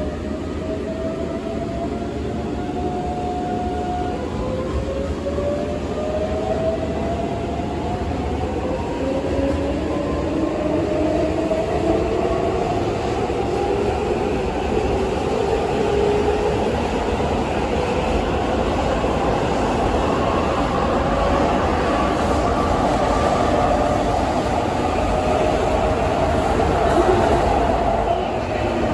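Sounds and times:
train wheels rumbling on rails: 0.0 - 28.9.

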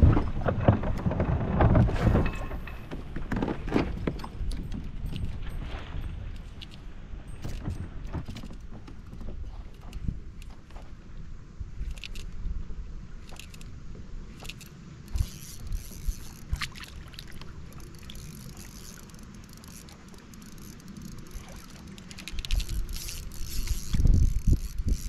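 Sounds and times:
water splashing: 15.1 - 24.9.

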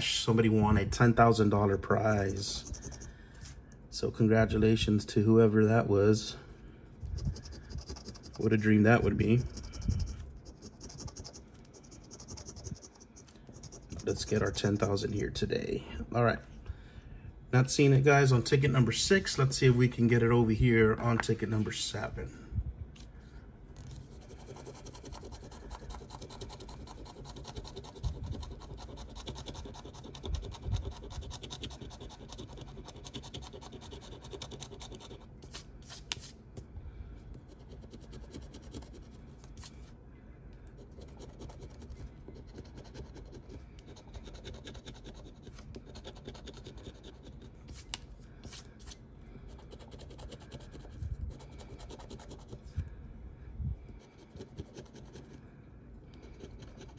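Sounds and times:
scratching lottery ticket coating: 2.0 - 3.1, 7.2 - 15.0, 23.8 - 36.3, 37.4 - 39.8, 40.8 - 52.7.

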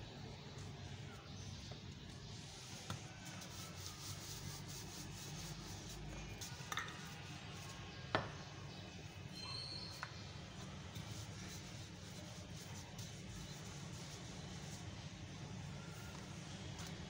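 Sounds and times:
hands rubbing dough: 0.4 - 8.4, 9.9 - 17.0.

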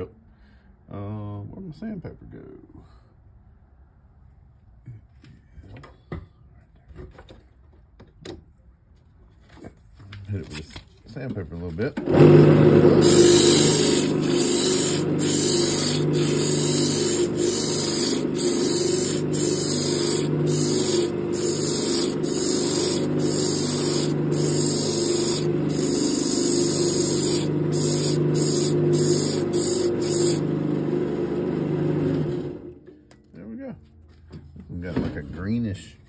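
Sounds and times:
lathe motor hum: 12.1 - 32.8
sandpaper sanding hiss: 13.0 - 30.4.

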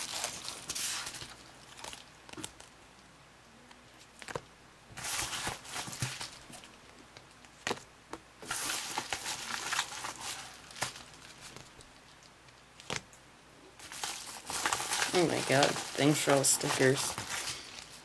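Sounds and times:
paper rustling and crinkling: 0.0 - 2.7, 5.0 - 6.7, 8.4 - 11.8, 13.8 - 18.0.

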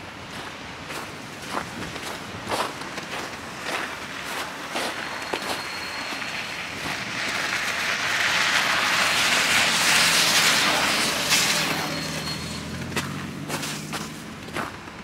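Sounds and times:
vehicle passing close by: 6.5 - 14.8.

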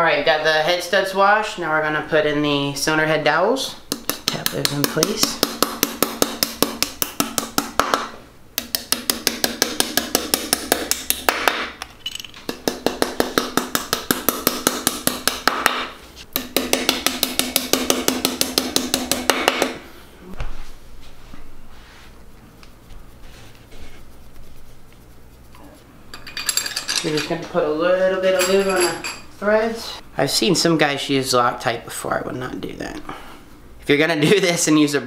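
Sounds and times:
hammer tapping metal: 3.9 - 19.8.

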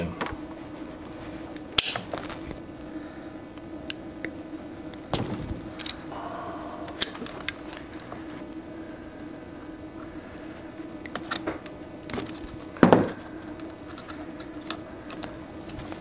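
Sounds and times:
steady low hum: 0.0 - 16.0
wiring being handled: 3.5 - 6.1, 6.8 - 8.6, 10.7 - 16.0.

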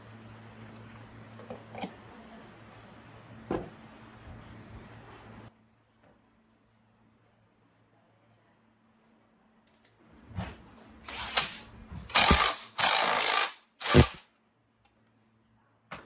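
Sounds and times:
hand tool mechanical bursts: 11.1 - 14.2.

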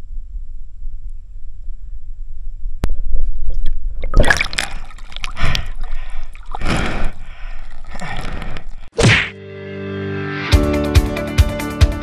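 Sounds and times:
water splashing and gurgling: 3.4 - 9.0.

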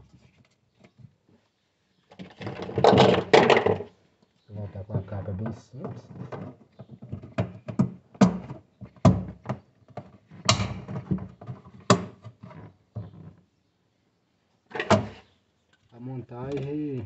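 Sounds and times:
plastic cover rattling: 2.1 - 3.9
plastic knocks and clicks: 5.4 - 13.4.

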